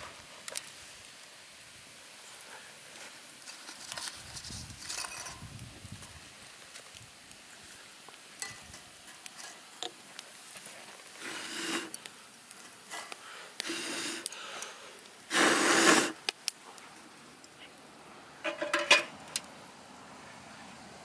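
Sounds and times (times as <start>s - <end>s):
man blowing into a tube: 15.3s - 16.2s.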